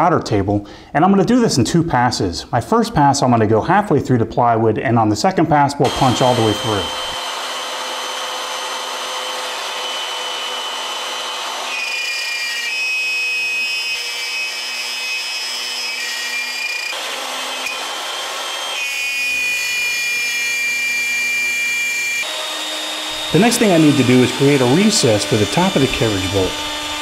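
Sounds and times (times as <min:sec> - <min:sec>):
router bit cutting wood: 0:05.8 - 0:27.0
router whining: 0:05.8 - 0:27.0.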